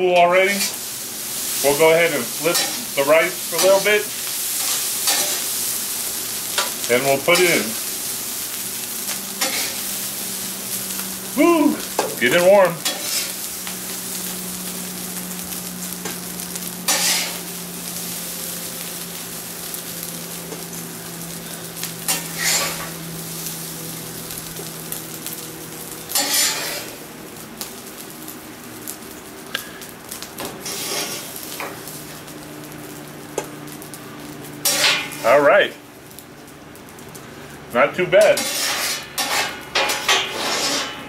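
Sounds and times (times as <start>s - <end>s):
rice sizzling on griddle: 0.0s - 41.0s
metal spatula scraping griddle: 0.2s - 5.6s, 6.5s - 7.8s, 9.4s - 9.9s, 12.0s - 13.4s, 16.9s - 17.5s, 22.1s - 23.4s, 26.1s - 27.0s, 30.4s - 31.8s, 34.6s - 35.4s, 38.1s - 41.0s.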